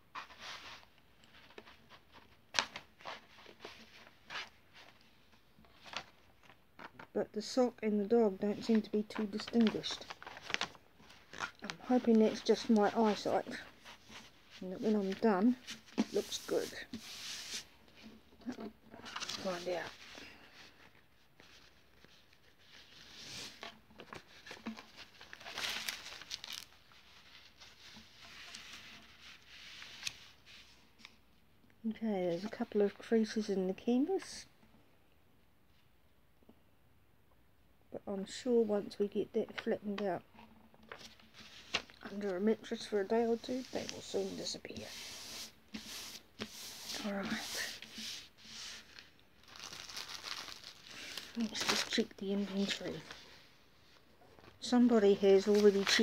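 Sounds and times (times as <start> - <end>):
paper rustling and crinkling: 0.1 - 7.1, 8.6 - 31.2, 40.8 - 56.0
canvas sheet rustling: 9.4 - 17.8, 41.3 - 53.2.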